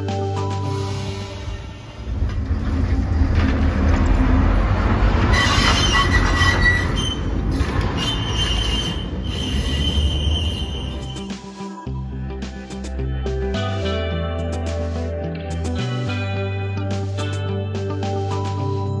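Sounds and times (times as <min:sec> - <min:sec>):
tram wheels rumbling on rails: 0:00.6 - 0:11.3
high-pitched wheel squeal: 0:05.1 - 0:11.4.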